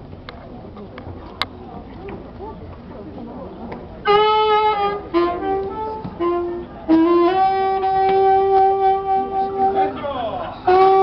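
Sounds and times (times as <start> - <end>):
saxophone melody: 4.0 - 10.0, 10.6 - 11.0.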